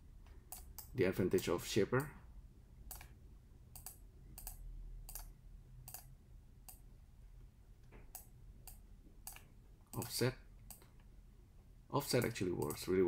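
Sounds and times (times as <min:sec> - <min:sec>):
computer mouse buttons clicking: 0:00.2 - 0:00.9, 0:02.9 - 0:06.8, 0:07.9 - 0:11.1.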